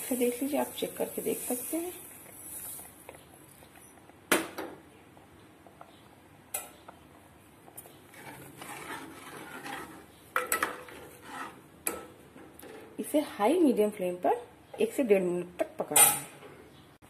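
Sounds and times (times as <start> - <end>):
spoon stirring and scraping pot: 5.2 - 13.1.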